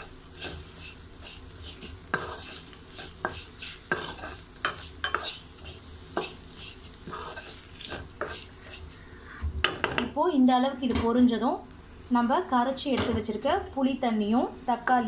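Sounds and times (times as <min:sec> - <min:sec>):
spatula scraping metal pan: 0:00.0 - 0:09.0
spices sizzling in oil: 0:00.0 - 0:15.0.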